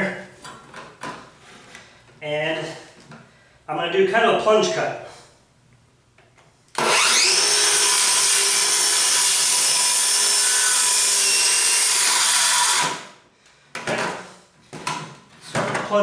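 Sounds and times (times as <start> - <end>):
circular saw cutting plywood: 6.8 - 13.1.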